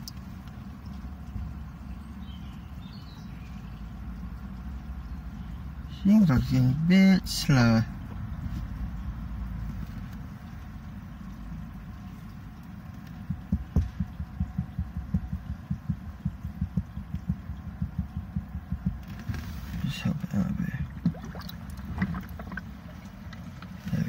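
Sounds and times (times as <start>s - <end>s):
running water rumble: 0.0s - 24.0s
sink drain glugging: 20.8s - 23.8s.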